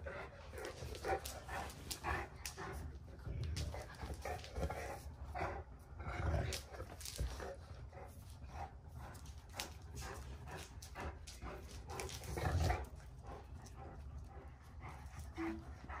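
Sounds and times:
dogs growling playfully: 0.0 - 16.0
paws scuffling on tile floor: 0.0 - 16.0
claws clicking on tile floor: 0.1 - 5.1, 6.1 - 13.9.

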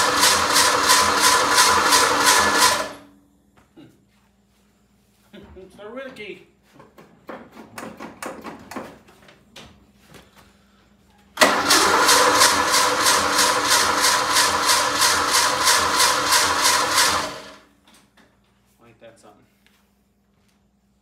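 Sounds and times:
engine starter cranking: 0.0 - 3.0, 11.4 - 17.6.

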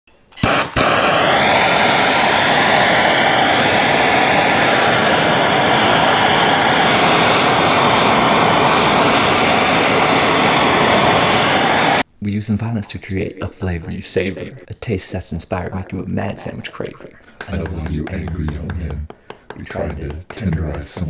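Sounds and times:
blow torch flame hissing: 0.4 - 12.1.

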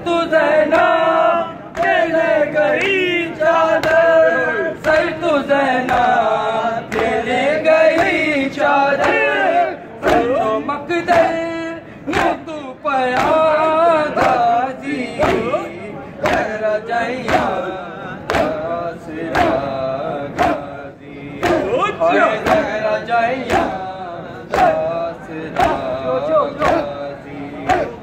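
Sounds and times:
men chanting a lament: 0.0 - 28.0
hands slapping chests: 18.3 - 18.7, 19.3 - 19.7, 20.3 - 20.7, 21.4 - 21.7, 22.4 - 22.7, 23.4 - 23.8, 25.5 - 25.9, 26.6 - 26.9.

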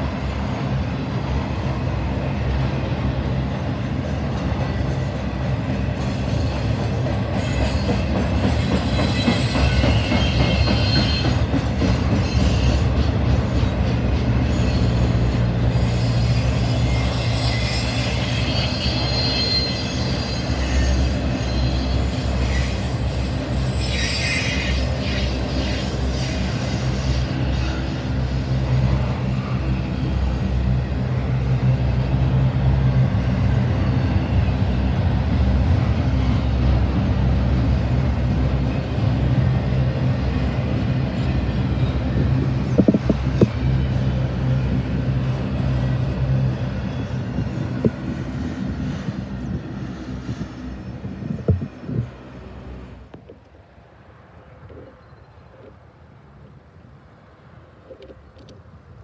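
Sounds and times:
freight train wheels rumbling: 0.0 - 59.0
high wheel squeals: 6.0 - 30.4.

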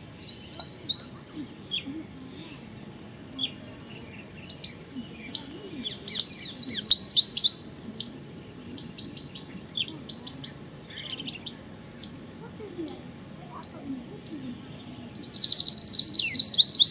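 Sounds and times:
faint bird chirps: 0.0 - 16.9
kingfisher calling: 0.2 - 1.9, 4.5 - 8.1, 15.2 - 16.9.

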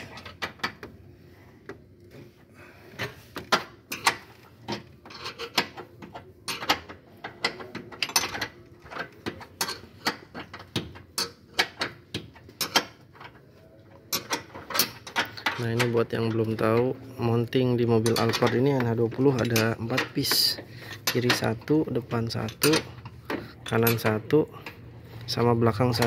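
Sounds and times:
wrench clicking on metal bolts: 3.4 - 13.4, 14.1 - 16.9, 17.5 - 26.0.

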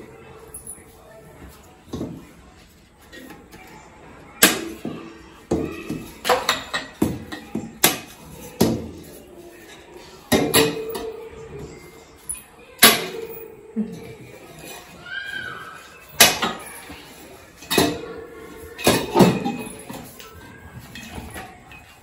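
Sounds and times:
metal poles clanking: 4.4 - 9.0, 9.7 - 11.4, 16.2 - 22.0.

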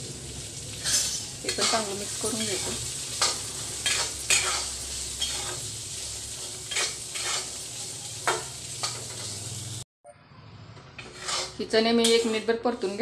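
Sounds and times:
oil sizzling: 0.0 - 9.9
metal spatula scraping pan: 0.8 - 5.7, 6.3 - 9.5, 10.8 - 13.0.

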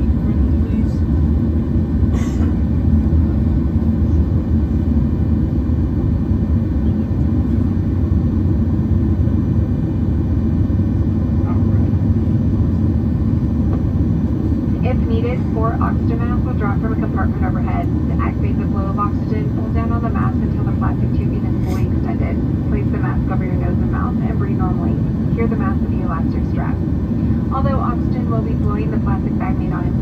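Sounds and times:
jet engine cabin rumble: 0.0 - 30.0.

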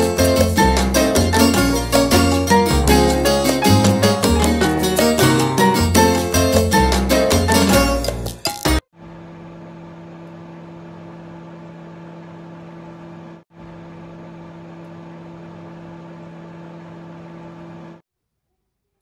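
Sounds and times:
microwave oven running: 8.9 - 18.0.

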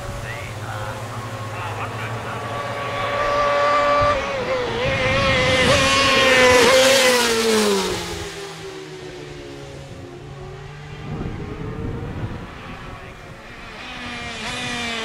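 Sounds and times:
racing motorcycles passing by: 0.0 - 15.0.

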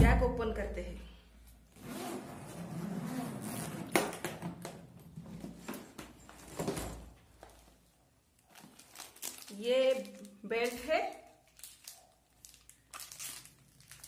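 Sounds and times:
suitcase zipper opening: 1.7 - 4.1
suitcase handling: 3.2 - 7.8.

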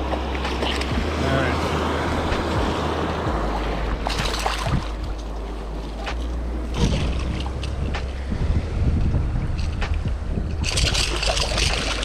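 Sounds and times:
fish splashing in water: 0.0 - 7.7, 10.6 - 12.0
ocean surf washing: 0.0 - 12.0
wind on microphone: 0.0 - 12.0.

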